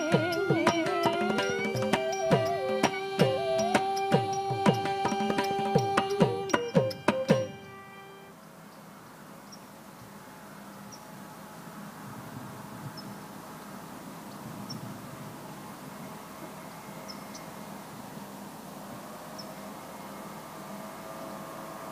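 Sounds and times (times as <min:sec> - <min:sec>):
faint background hiss: 0:00.0 - 0:21.9.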